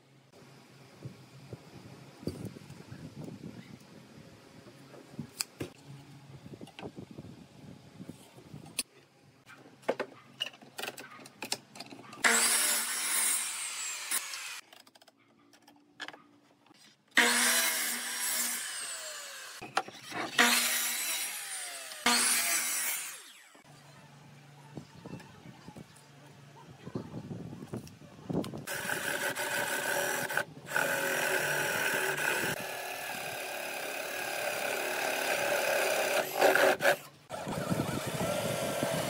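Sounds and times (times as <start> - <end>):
miter saw cutting wood: 12.2 - 14.6, 17.2 - 23.6, 28.7 - 39.0.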